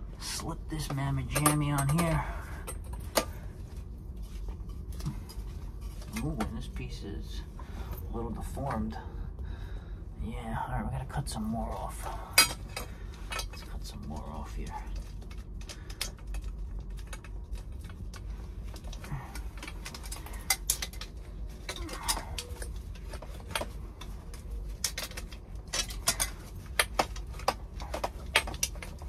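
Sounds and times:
metallic clinks of pipe and tools: 0.8 - 3.4, 12.2 - 13.8, 18.8 - 29.0.

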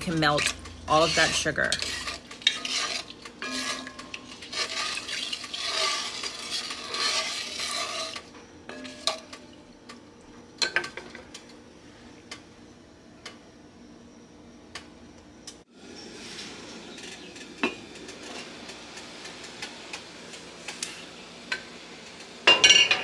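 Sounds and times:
wooden spatula scraping a pot: 0.0 - 9.2.

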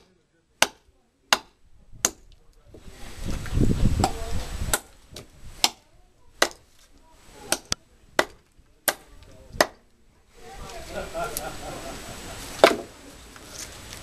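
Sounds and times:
knife chopping into wood: 0.6 - 2.2, 4.0 - 5.8, 6.4 - 6.7, 7.4 - 9.8, 12.6 - 12.9.

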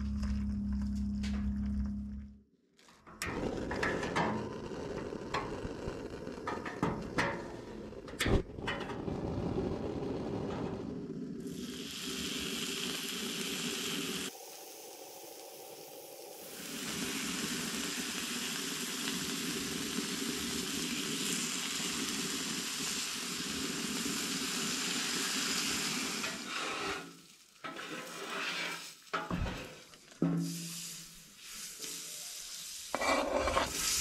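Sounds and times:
bacon sizzling on a griddle: 11.4 - 29.8, 30.4 - 34.0
metal turner scraping griddle: 26.2 - 30.6, 32.9 - 34.0.

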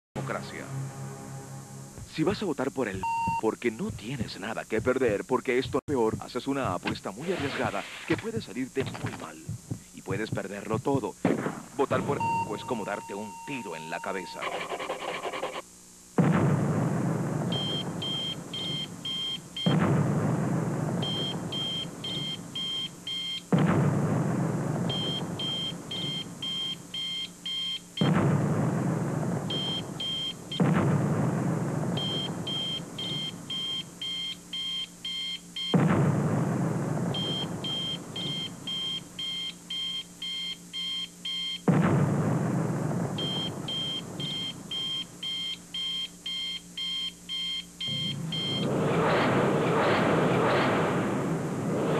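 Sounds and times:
high electronic beeping: 0.6 - 5.2, 11.9 - 15.6, 43.2 - 48.7
loud booming hit: 16.2 - 18.0, 19.7 - 21.6, 23.5 - 25.4, 35.7 - 38.6, 41.7 - 44.4, 47.9 - 51.9.

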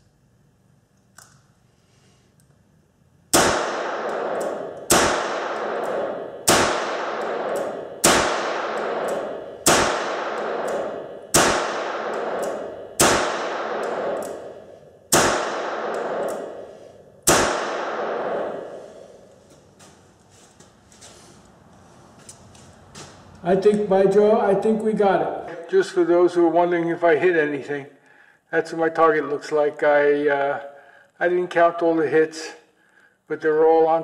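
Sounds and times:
revolver shots echoing indoors: 3.2 - 25.7.

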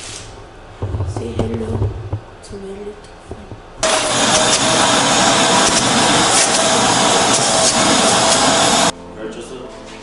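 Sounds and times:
vacuum cleaner running: 3.8 - 8.9.

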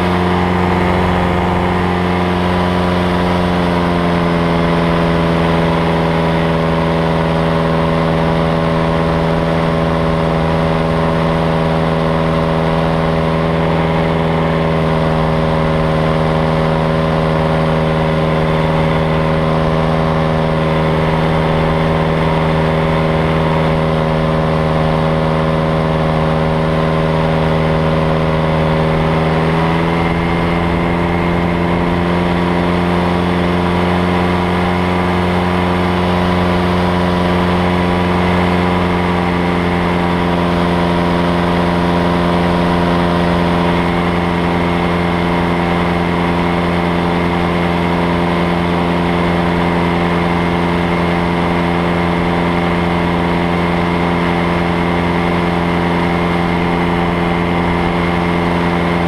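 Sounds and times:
rushing air: 0.0 - 5.9, 7.1 - 35.5
aircraft engine droning: 0.0 - 59.0.

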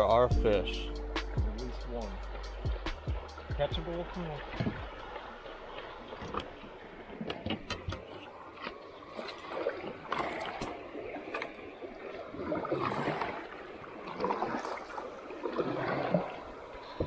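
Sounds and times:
water swishing and splashing: 0.0 - 17.0
sharp knocks on kayak: 4.5 - 4.9.

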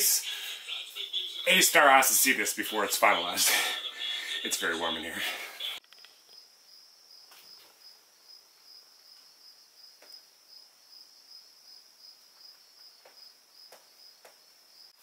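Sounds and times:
faint cricket chirping: 5.8 - 15.0.

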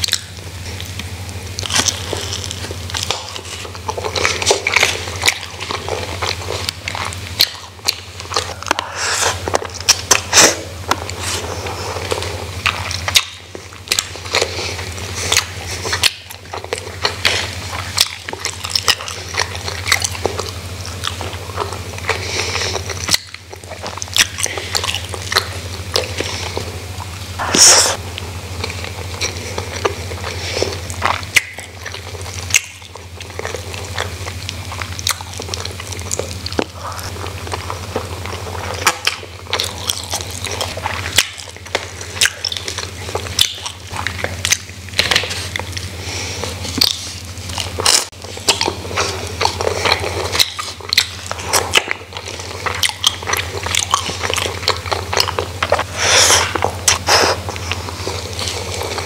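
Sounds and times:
chewing and crunching food: 0.0 - 59.0
steady low hum: 0.0 - 59.0
wet mouth clicks: 27.4 - 28.0.

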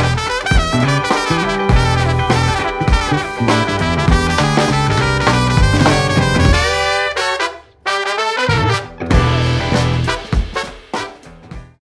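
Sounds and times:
kick drum and bass hits: 0.0 - 7.1, 9.1 - 10.6
jazz-funk horn band playing: 0.0 - 11.8.

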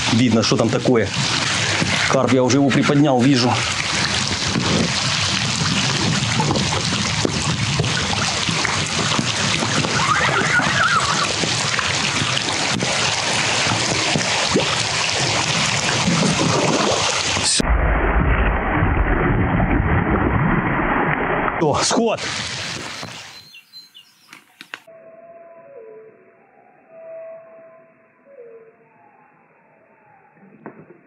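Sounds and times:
low rumble: 17.4 - 21.6.

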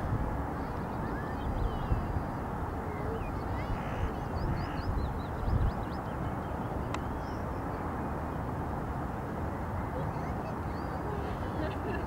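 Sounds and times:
wind rumbling on microphone: 0.0 - 12.0
small birds chirping: 0.6 - 7.9, 9.8 - 11.7.

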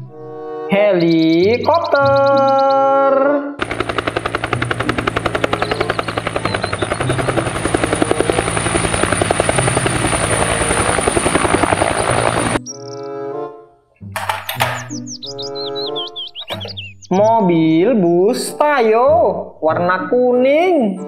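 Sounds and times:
helicopter rotor chop: 3.6 - 12.6, 14.2 - 16.8
turbine whine: 3.6 - 12.6.

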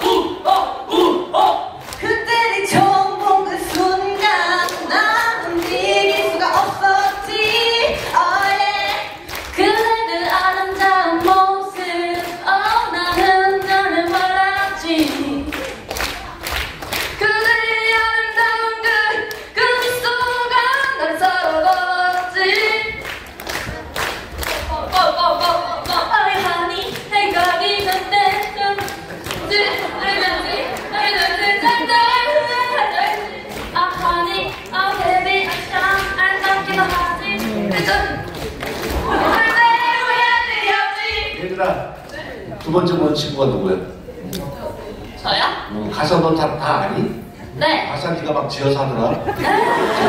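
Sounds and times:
women singing into microphones: 0.0 - 15.7, 17.0 - 23.7, 24.5 - 38.3, 38.9 - 41.4.

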